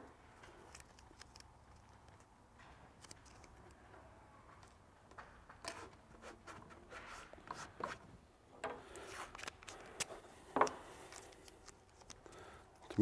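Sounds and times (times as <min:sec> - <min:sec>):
tape rubbing and rustling: 0:00.4 - 0:03.8, 0:05.5 - 0:08.1, 0:08.9 - 0:10.3, 0:10.9 - 0:13.0.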